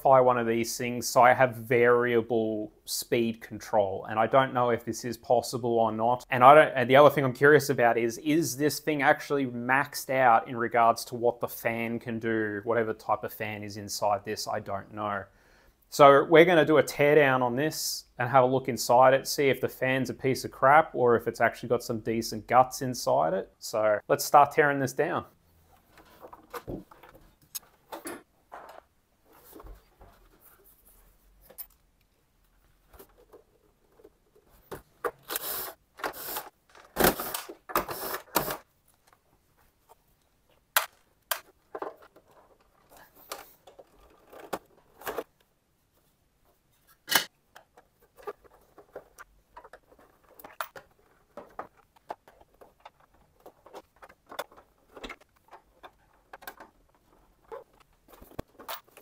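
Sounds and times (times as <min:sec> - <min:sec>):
plastic panels clicking and knocking: 0:40.6 - 0:45.4, 0:47.0 - 0:59.0.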